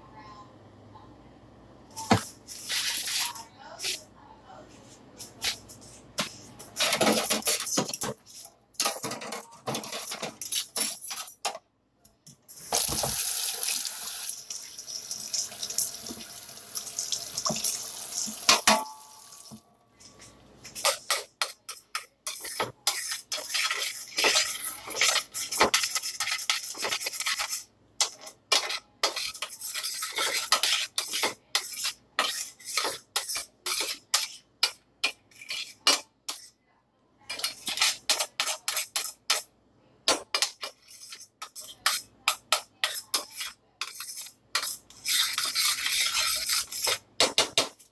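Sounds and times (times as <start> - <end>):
dishes and pans clattering: 6.2 - 11.6, 17.4 - 36.5
kitchen tap running: 12.7 - 19.6.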